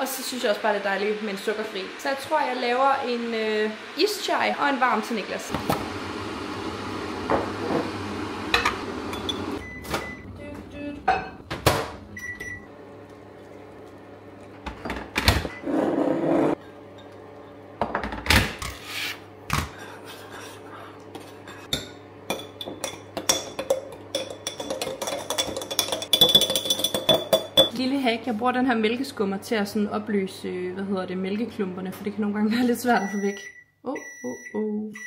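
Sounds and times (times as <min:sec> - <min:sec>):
objects knocking on countertop: 0:17.8 - 0:18.3
metal spoon stirring and clinking: 0:21.7 - 0:27.7.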